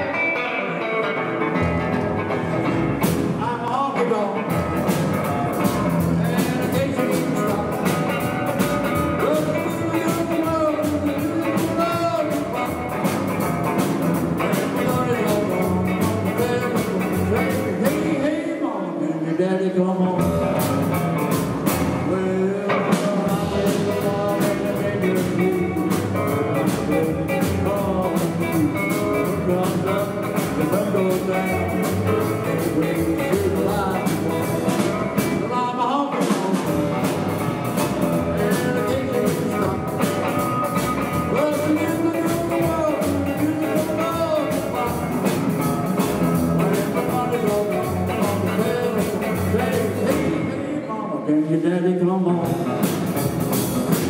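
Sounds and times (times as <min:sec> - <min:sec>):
man singing: 0:00.0 - 0:02.6, 0:03.2 - 0:54.0
rockabilly band playing: 0:00.0 - 0:51.0, 0:52.0 - 0:54.0.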